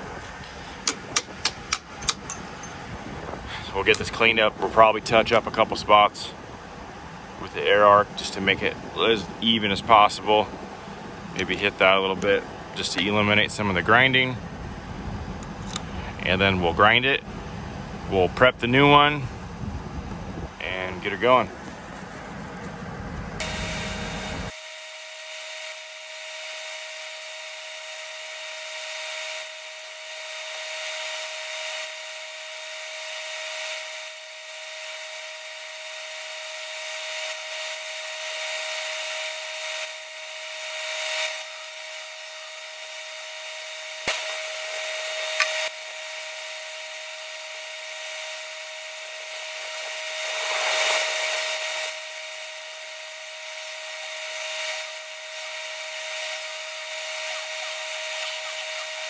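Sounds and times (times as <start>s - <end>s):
sharp clicks: 0.9s - 2.5s
handheld grinder grinding steel: 0.9s - 2.8s, 26.4s - 45.7s, 56.2s - 59.0s.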